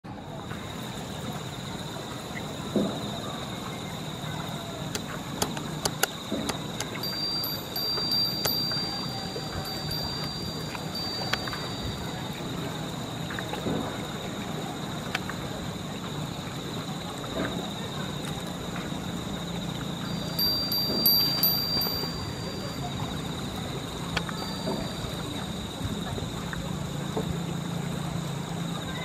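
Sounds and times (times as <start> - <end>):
faint clicks: 4.9 - 16.1, 19.6 - 27.3
short ringing tones: 6.9 - 12.8, 20.0 - 25.5.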